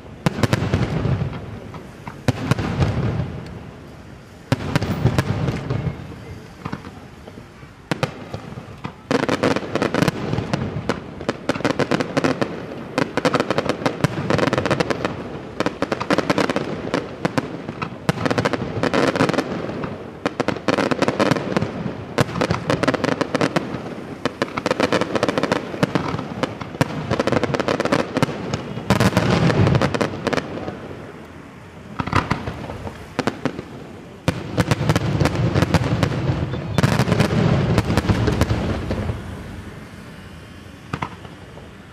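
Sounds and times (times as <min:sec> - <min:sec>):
fireworks bangs and crackling: 0:00.0 - 0:41.9.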